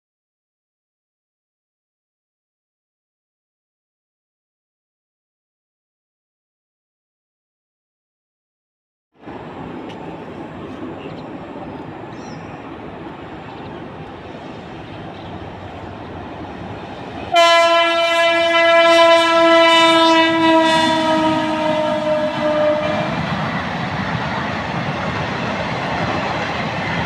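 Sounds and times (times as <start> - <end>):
locomotive rumble: 9.2 - 27.0
locomotive horn blast: 17.3 - 23.3.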